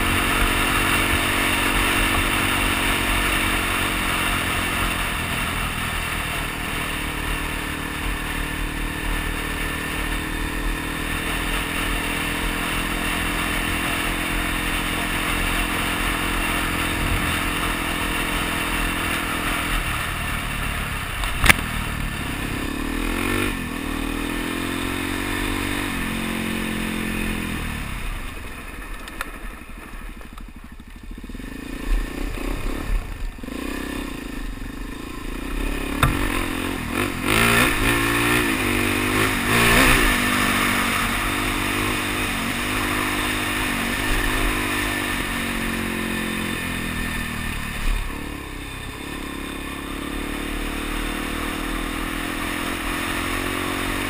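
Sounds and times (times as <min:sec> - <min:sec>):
motorcycle engine running: 0:00.0 - 0:54.0
sharp click: 0:21.2 - 0:21.7.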